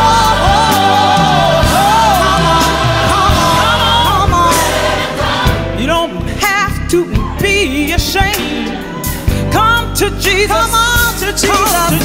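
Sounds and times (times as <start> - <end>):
choir singing: 0.0 - 6.2
drums: 0.0 - 12.0
piano: 0.0 - 12.0
woman singing with vibrato: 0.0 - 12.0.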